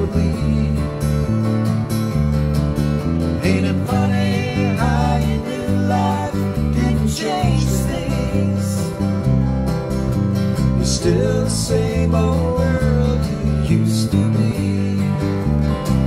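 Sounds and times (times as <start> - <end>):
man singing: 0.0 - 1.5, 3.4 - 9.1, 10.8 - 16.0
bass guitar: 0.0 - 16.0
strummed acoustic guitars: 0.0 - 16.0.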